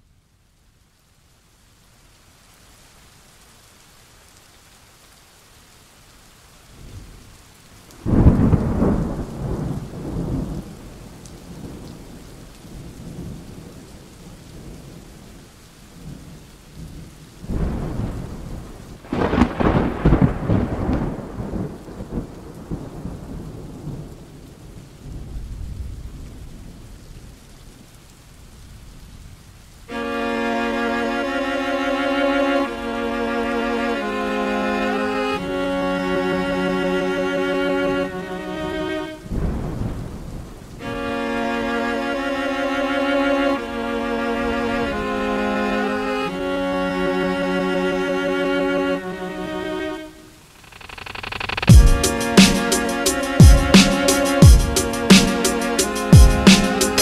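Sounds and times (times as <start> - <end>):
heavy rain: 0.0 - 57.0
rolling thunder: 8.0 - 13.8, 17.4 - 26.9, 38.6 - 40.7.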